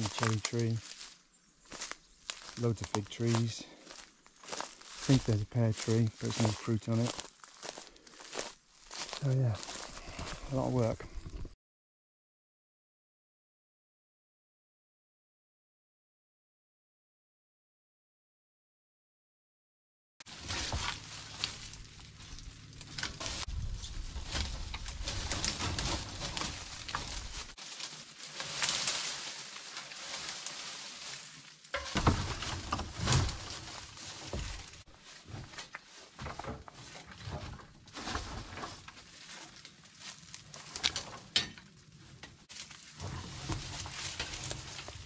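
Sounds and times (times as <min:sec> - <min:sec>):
brush rustling and snapping: 0:00.0 - 0:09.9, 0:20.3 - 0:36.0, 0:37.9 - 0:45.0.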